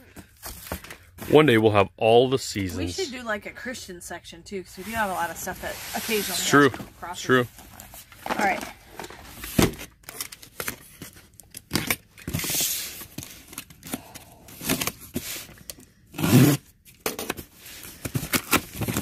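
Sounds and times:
cardboard scraping: 4.8 - 9.9
packing tape ripping: 16.2 - 16.6, 18.0 - 19.0.

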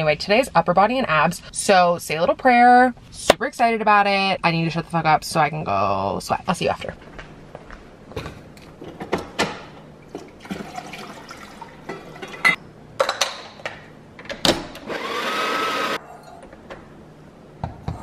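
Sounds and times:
bottles and cups clattering: 10.1 - 13.4
espresso machine hissing: 14.9 - 16.0.

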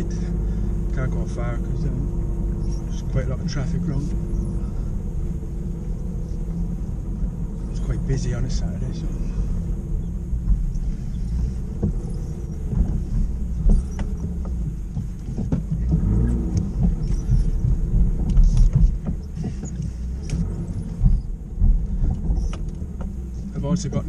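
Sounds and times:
car engine rumbling: 0.0 - 24.0
knocks and clunks: 10.2 - 24.0.

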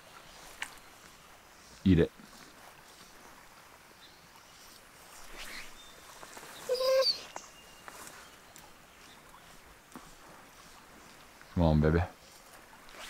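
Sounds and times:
loud high-pitched animal call: 6.7 - 7.3.

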